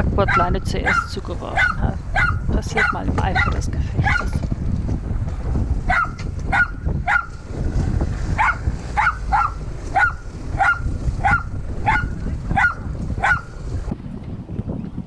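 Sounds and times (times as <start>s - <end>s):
dog barking: 0.3s - 4.3s, 5.9s - 7.4s, 8.4s - 13.5s.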